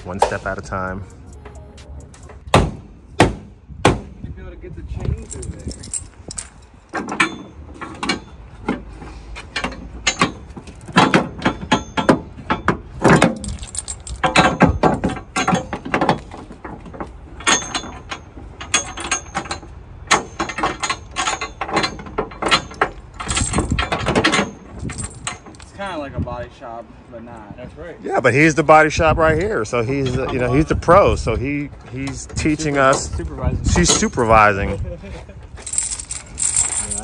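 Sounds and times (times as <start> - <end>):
chain rattling against metal: 5.0 - 8.5, 9.6 - 25.9, 29.4 - 37.0.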